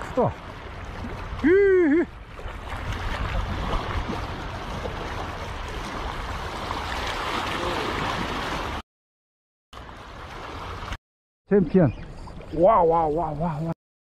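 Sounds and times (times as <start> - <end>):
shallow water splashing: 0.0 - 8.8.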